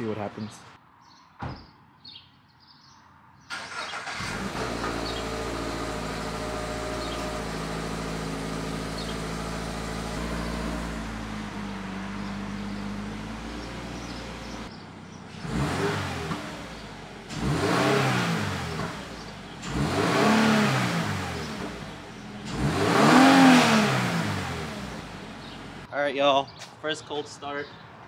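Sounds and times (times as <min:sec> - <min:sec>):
car engine starting and idling: 0:03.5 - 0:25.9.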